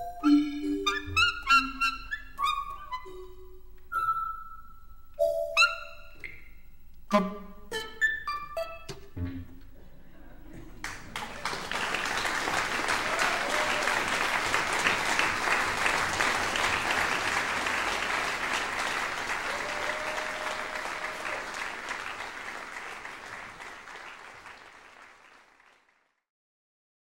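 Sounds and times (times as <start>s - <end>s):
audience applause: 10.4s - 26.1s.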